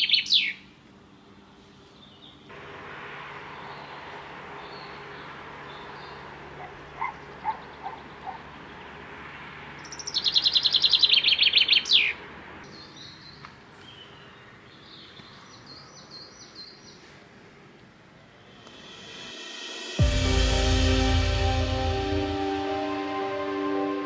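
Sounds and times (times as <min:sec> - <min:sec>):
songbird trilling: 0:00.0 - 0:00.6, 0:05.9 - 0:08.8, 0:09.8 - 0:14.4.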